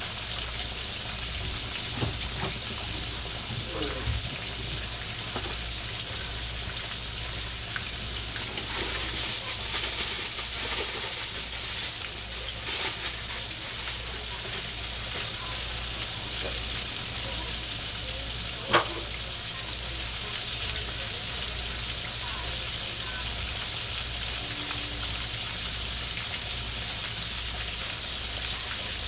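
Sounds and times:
chicken deep-frying in oil: 0.0 - 29.0.

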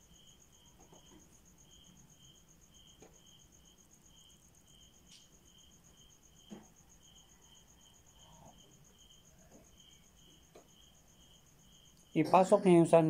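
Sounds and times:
insect high pulsing trill: 0.0 - 13.0
insect lower chirp: 0.0 - 13.0.

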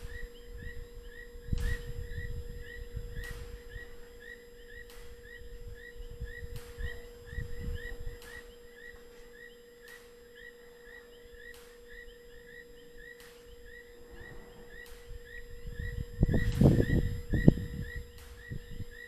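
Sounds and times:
electrical hum: 0.0 - 19.0
sharp ticks: 0.0 - 19.0
low rumbling: 13.8 - 18.9.

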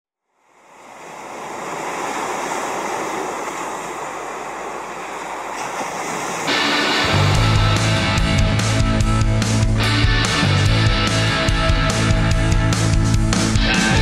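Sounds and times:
ocean surf washing ashore: 0.3 - 10.6
band music with guitar: 6.5 - 14.0.

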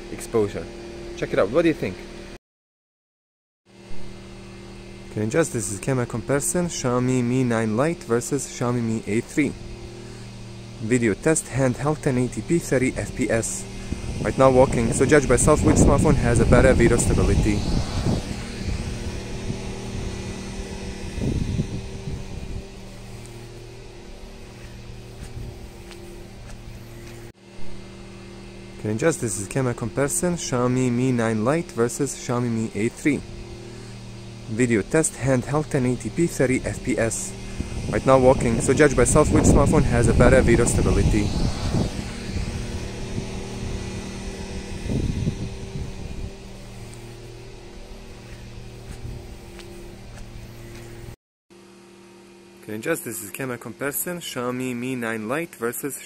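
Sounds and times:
low mechanical hum: 0.0 - 2.4, 3.7 - 56.0
low rumble: 9.5 - 28.9, 32.4 - 51.2.

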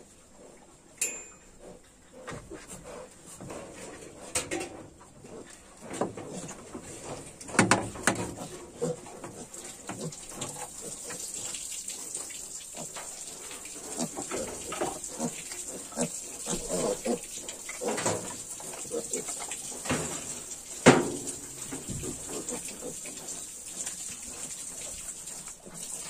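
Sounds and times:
piglets grunting: 8.2 - 11.1, 13.9 - 19.5.

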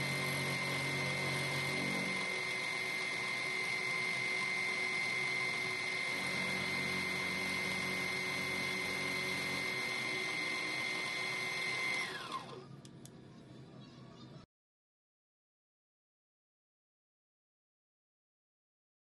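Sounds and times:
milling machine whine: 0.0 - 12.8.

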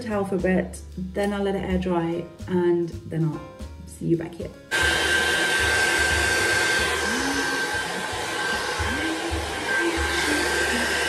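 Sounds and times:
hair dryer blowing: 4.7 - 11.0.

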